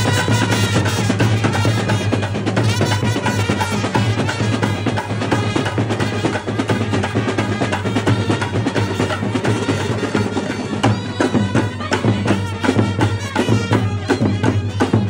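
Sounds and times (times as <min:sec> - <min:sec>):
fast drumming: 0:00.0 - 0:15.0
held horn notes: 0:00.0 - 0:15.0
street brass band playing: 0:00.0 - 0:15.0.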